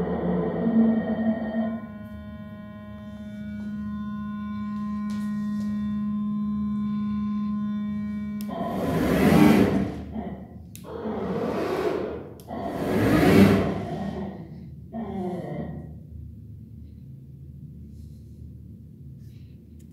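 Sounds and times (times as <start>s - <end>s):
click: 8.4s - 8.6s
rushing noise: 11.0s - 14.2s.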